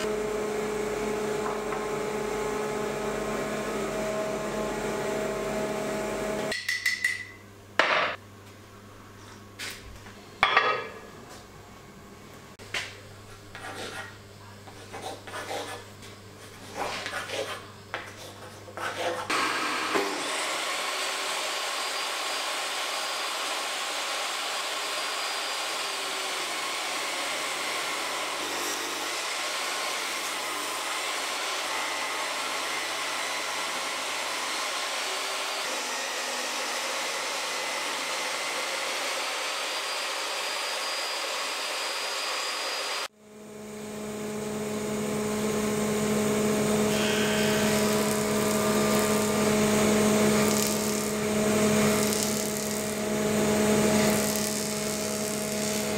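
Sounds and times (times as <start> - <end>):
dust extractor noise: 0.0 - 6.5, 19.3 - 55.9
table saw ripping wood: 19.3 - 32.2, 46.8 - 55.9.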